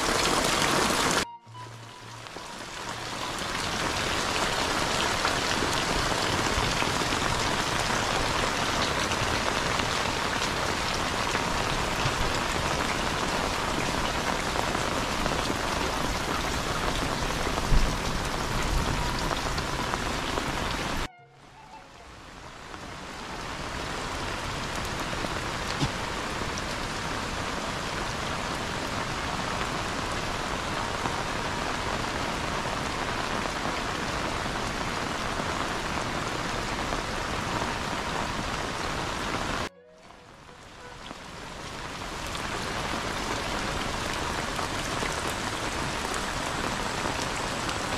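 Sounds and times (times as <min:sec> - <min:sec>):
heavy rain pouring: 0:00.0 - 0:47.9.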